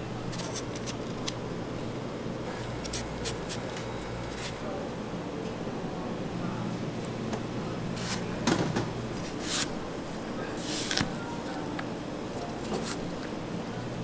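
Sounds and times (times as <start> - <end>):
steady low hum: 0.0 - 14.0
knife slicing apple: 9.2 - 9.8.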